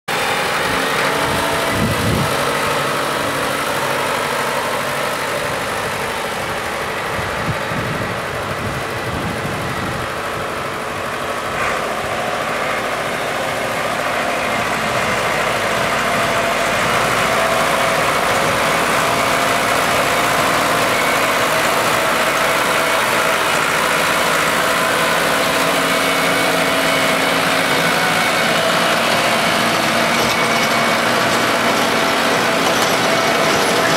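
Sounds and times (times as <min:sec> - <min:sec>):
tractor diesel engine under load: 0:00.1 - 0:33.9.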